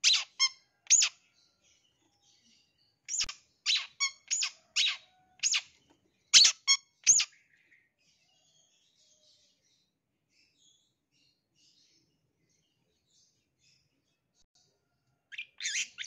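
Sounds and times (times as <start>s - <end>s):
bird harsh rasping calls: 0.0s - 1.2s, 6.4s - 7.3s.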